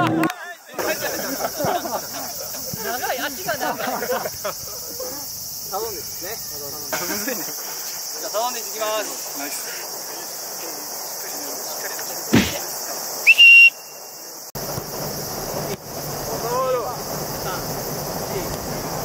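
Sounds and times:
crickets chirring: 0.4s - 19.0s
thump: 12.3s - 12.6s
loud whistle: 13.2s - 14.3s.

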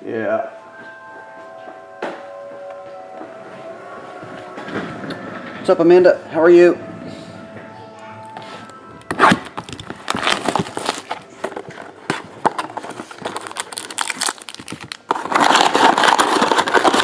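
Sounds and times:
cardboard and plastic rustling: 9.1s - 17.0s
plastic wrapper crinkling: 9.3s - 17.0s.

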